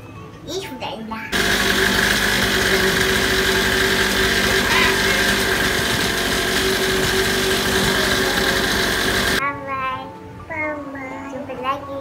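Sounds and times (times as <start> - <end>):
small dirt bike engine running: 1.3 - 9.4.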